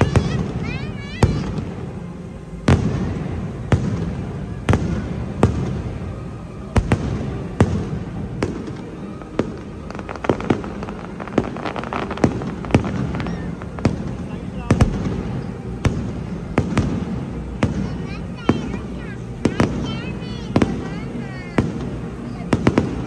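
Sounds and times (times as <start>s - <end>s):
steady low rumble: 0.0s - 23.0s
firework shells bursting: 6.8s - 18.0s.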